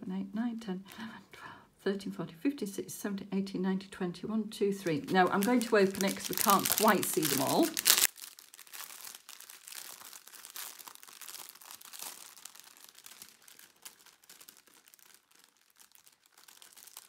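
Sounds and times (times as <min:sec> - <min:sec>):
plastic packaging crinkling: 0:04.8 - 0:17.0.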